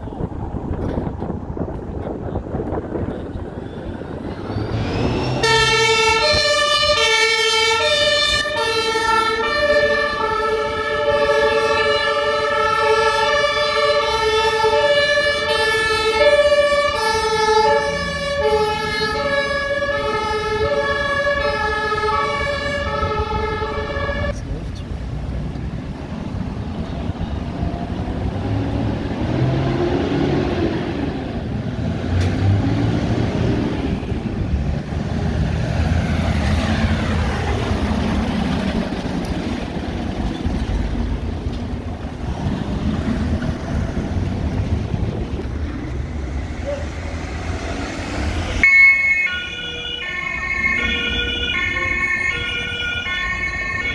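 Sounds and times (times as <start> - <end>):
fire engines rumbling past: 0.0 - 53.9
two-tone emergency siren: 4.4 - 24.4, 46.0 - 53.9.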